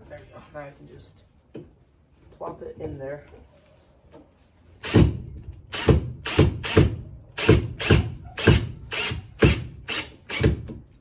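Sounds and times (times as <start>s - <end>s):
cordless drill driving screw: 7.4s - 10.7s.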